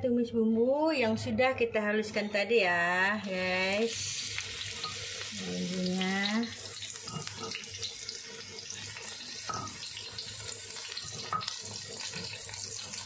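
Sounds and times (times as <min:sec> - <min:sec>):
paste sizzling in hot oil: 0:03.1 - 0:13.0.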